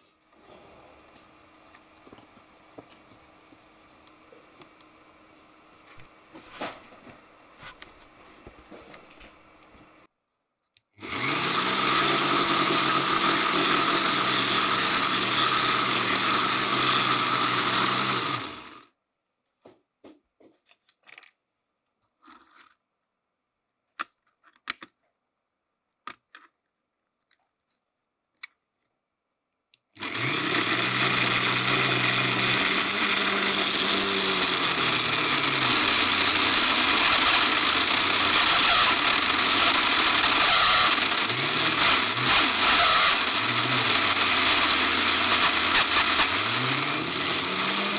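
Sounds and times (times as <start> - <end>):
rotary tool saw humming: 11.0 - 18.9, 30.0 - 47.9.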